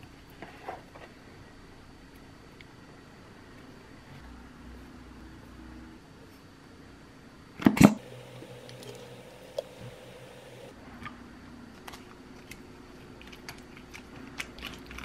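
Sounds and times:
low steady hum: 0.0s - 15.0s.

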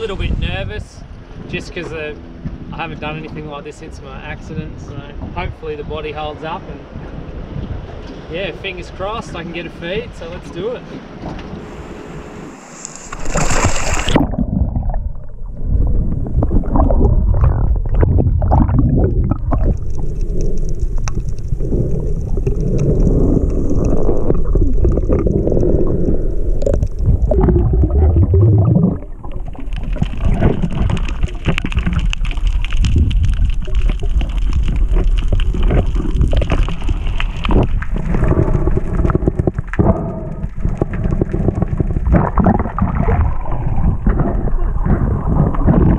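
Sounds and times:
splash of person jumping in water: 13.1s - 14.3s
underwater clicks and knocks: 28.6s - 45.9s.

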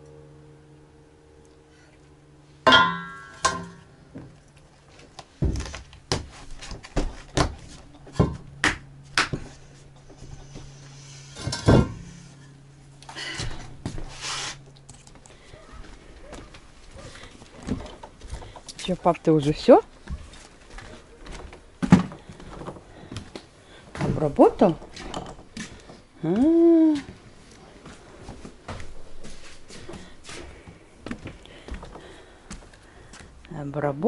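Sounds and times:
steady low hum: 0.0s - 34.0s
metal basin ringing clatter: 2.6s - 3.9s.

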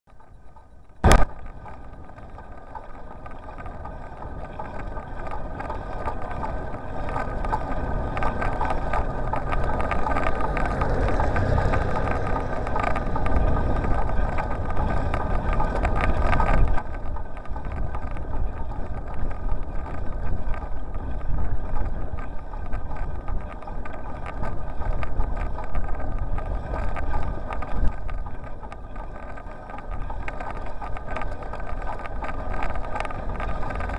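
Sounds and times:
bicycle rattling and bumping: 0.1s - 33.9s
sharp click: 1.0s - 1.5s
wind on microphone: 1.0s - 33.9s.

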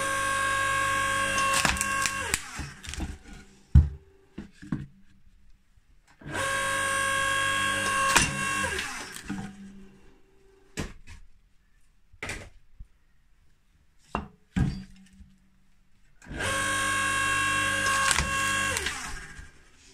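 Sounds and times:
log splitter motor humming: 0.0s - 3.5s, 6.3s - 9.5s, 16.2s - 19.6s.

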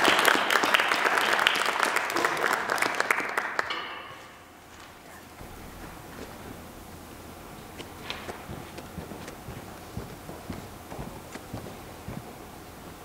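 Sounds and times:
audience applauding: 0.0s - 3.9s.

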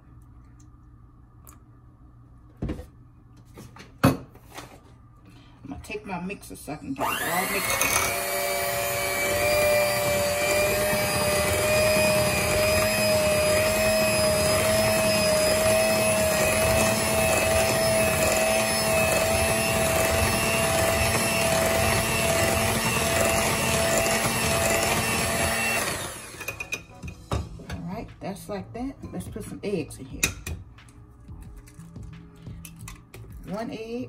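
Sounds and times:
electric mixer whipping batter: 7.0s - 26.8s.

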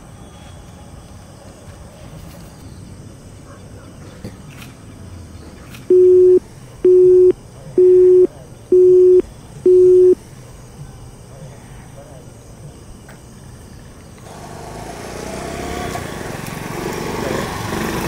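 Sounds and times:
telephone busy tone beeps: 5.9s - 10.2s.

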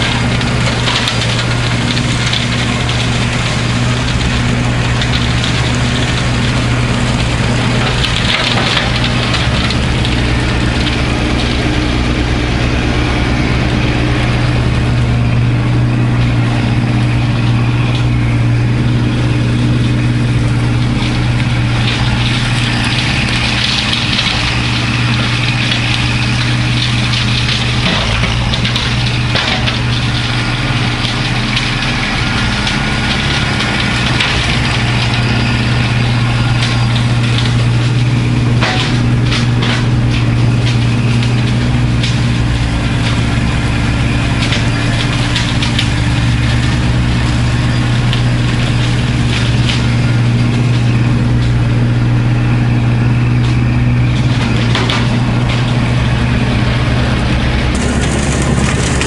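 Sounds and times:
tractor diesel engine running: 0.0s - 59.0s
brush and wood breaking: 57.7s - 59.0s.

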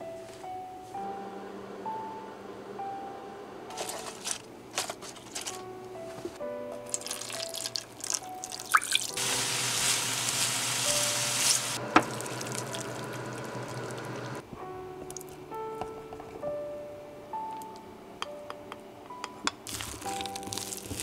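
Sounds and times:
light background music: 0.0s - 12.6s, 14.4s - 21.0s
vegetables sizzling in a pan: 6.9s - 14.4s, 19.7s - 21.0s
hiss: 9.2s - 11.8s.

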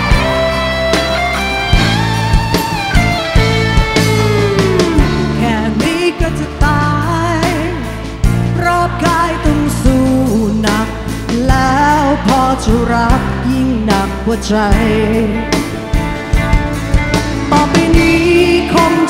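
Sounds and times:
live rock band: 0.0s - 19.0s
woman singing: 5.0s - 15.6s, 17.5s - 19.0s.

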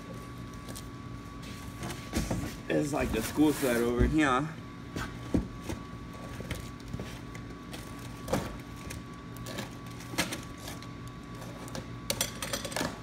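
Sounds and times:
mechanical hum: 0.0s - 13.0s
cardboard boxes rustling and knocking: 1.6s - 4.3s.

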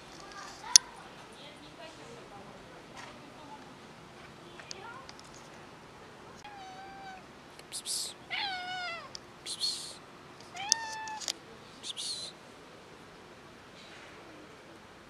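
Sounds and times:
hissing rustles: 0.0s - 1.4s, 6.3s - 12.4s
cat meowing: 6.4s - 7.3s, 8.3s - 9.2s, 10.5s - 11.3s.

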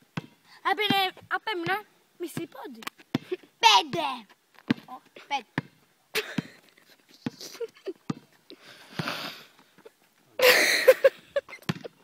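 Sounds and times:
basketball knocks and thumps: 0.2s - 2.5s, 3.9s - 5.0s, 8.0s - 8.3s, 11.6s - 12.0s.

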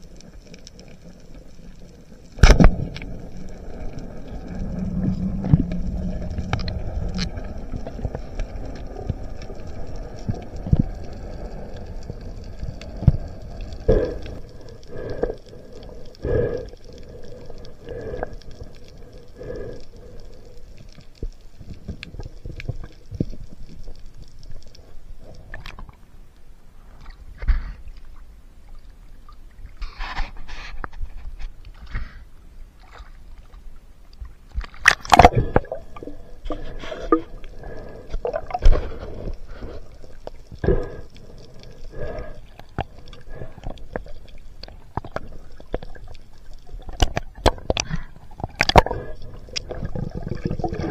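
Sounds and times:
muffled underwater rumble: 0.0s - 50.9s
water splashing: 34.5s - 50.9s.

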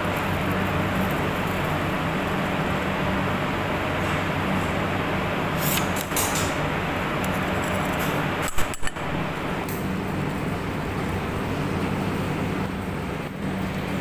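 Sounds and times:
extractor hood fan humming: 0.0s - 14.0s
metal spoon scraping a bowl: 7.2s - 8.9s.

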